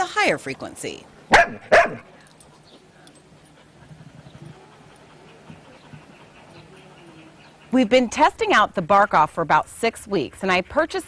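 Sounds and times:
very high-pitched steady tone: 2.4s - 7.8s.

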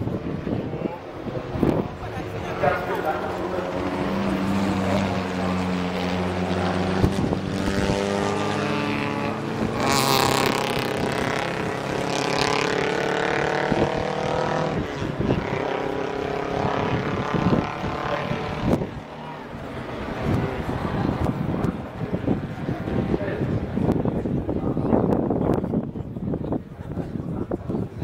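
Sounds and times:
race car engines passing: 0.0s - 28.0s.

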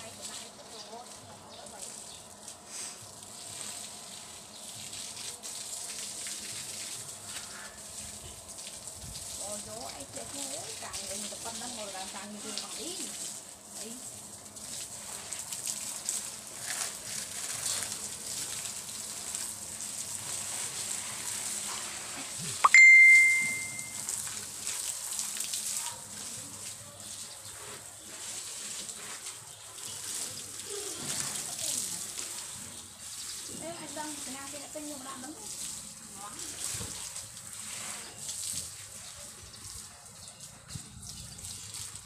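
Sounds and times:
garden hose spraying water: 0.0s - 42.0s
loud ding: 22.7s - 24.0s.

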